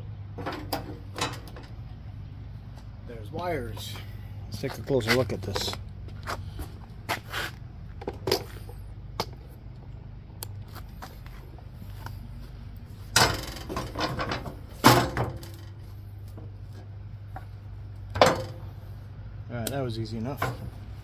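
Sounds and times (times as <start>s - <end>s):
steady low hum: 0.0s - 21.0s
metal seat brackets clattering: 0.4s - 1.8s, 13.1s - 15.8s, 18.1s - 18.7s.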